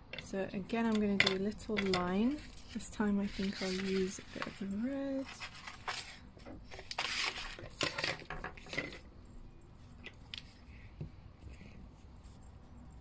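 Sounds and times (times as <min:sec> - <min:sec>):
paper rustling on table: 0:02.3 - 0:09.0.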